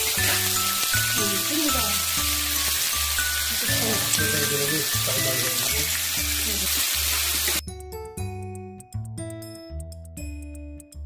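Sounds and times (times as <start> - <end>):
meat sizzling on grill pan: 0.0 - 7.6
background music: 0.0 - 11.0.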